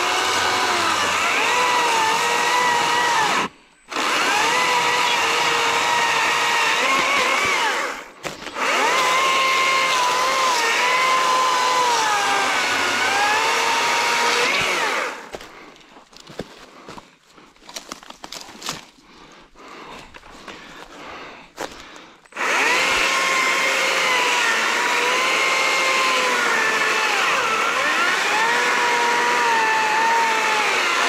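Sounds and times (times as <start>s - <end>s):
electric chainsaw cutting log: 0.0s - 15.4s, 22.3s - 31.0s.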